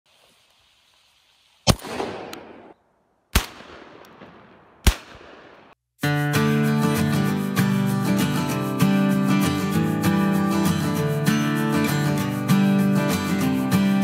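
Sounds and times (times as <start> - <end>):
shotgun shots with echo: 1.7 - 5.8
acoustic guitar music: 6.0 - 14.0.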